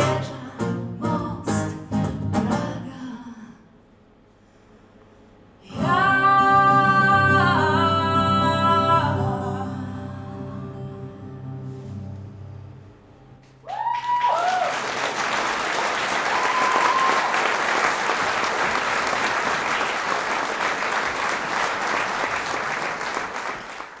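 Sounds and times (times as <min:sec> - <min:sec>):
acoustic guitar note: 0:05.7 - 0:13.6
high whoops: 0:13.6 - 0:14.9, 0:16.2 - 0:17.5
audience applause: 0:13.7 - 0:24.0.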